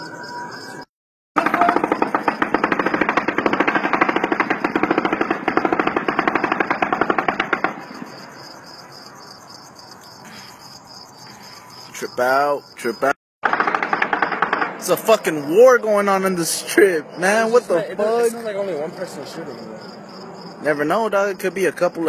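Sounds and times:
rapid gunfire: 1.4s - 8.2s, 13.4s - 15.2s.

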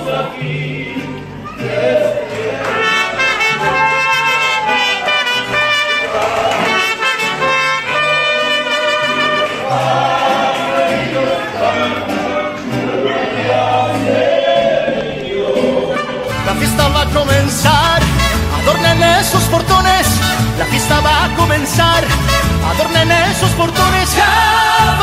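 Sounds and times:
trumpets playing: 2.6s - 10.1s, 15.8s - 25.0s
bass line: 9.4s - 25.0s
person singing: 9.6s - 25.0s.

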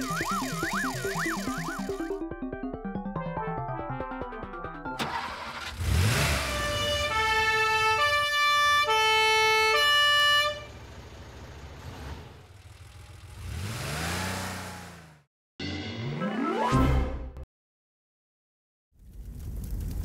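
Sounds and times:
cartoon engine: 0.0s - 2.2s
two-tone siren: 0.0s - 2.2s, 6.4s - 10.7s.

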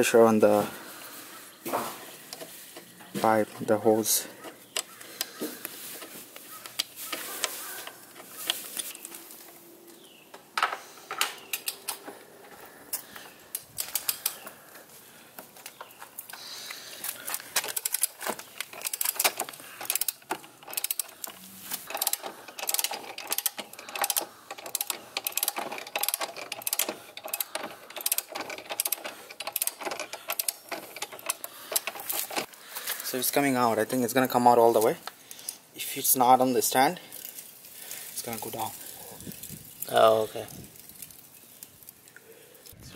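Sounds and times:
metal clicks and taps: 10.3s - 12.1s, 17.3s - 32.5s
ratcheting wrench clicking: 17.3s - 32.5s.

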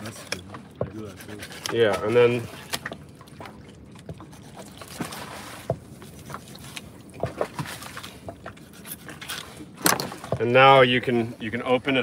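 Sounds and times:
knife cutting fish skin: 0.9s - 2.8s.

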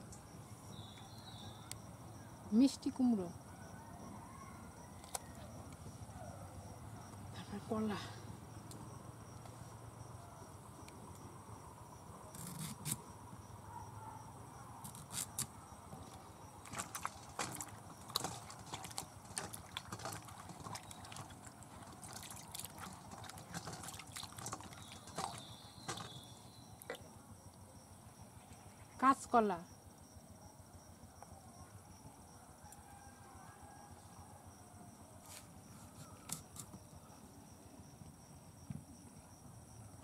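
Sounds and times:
water splashes and drips: 16.6s - 27.1s.

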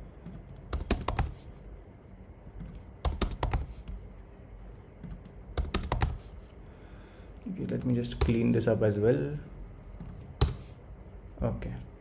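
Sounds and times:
computer keyboard typing: 0.2s - 1.5s, 2.6s - 4.0s, 5.0s - 6.4s, 7.7s - 8.6s.

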